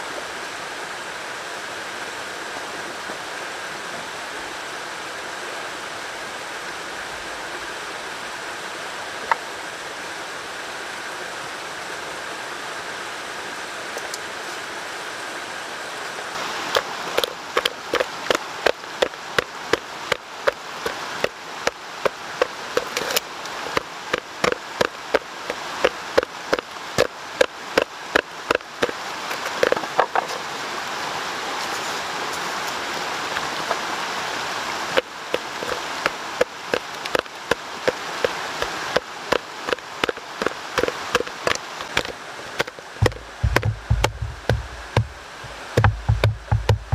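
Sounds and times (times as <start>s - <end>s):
stone pounding clay in bucket: 16.8s - 21.3s, 22.0s - 29.8s, 35.3s - 35.8s, 36.4s - 46.9s
steady rough noise: 34.9s - 46.9s.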